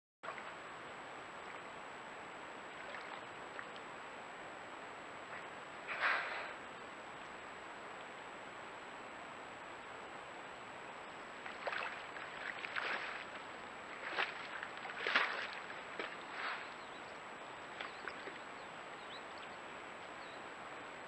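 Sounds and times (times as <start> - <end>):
bear splashing in water: 2.7 - 3.8, 11.4 - 17.0, 17.7 - 18.5.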